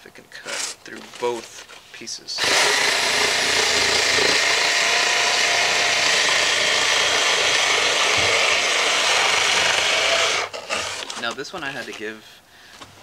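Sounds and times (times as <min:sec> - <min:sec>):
rotary cutter motor running: 0:02.4 - 0:11.1
blade cutting cardboard: 0:02.4 - 0:11.3.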